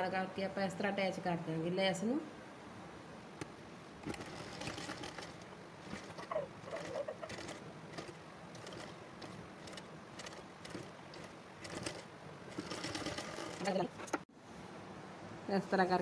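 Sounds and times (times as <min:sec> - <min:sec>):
sewing machine stitching: 0:04.0 - 0:14.2.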